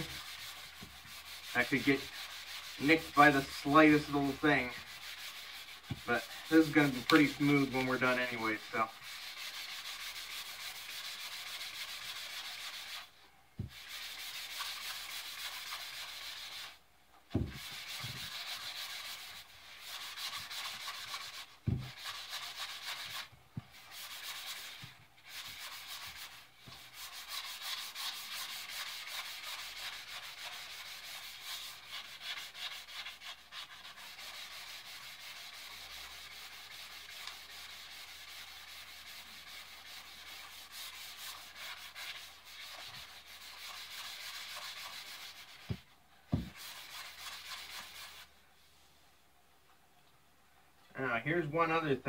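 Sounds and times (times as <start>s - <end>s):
abrasive sanding wood: 0.0s - 16.8s, 17.4s - 48.3s
dull knocks: 17.3s - 18.2s.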